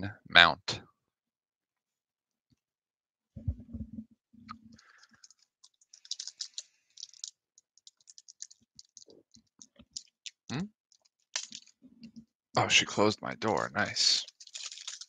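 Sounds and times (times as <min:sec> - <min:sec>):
foil wrapper crinkling: 0:04.8 - 0:10.3, 0:11.0 - 0:11.8, 0:14.2 - 0:15.0.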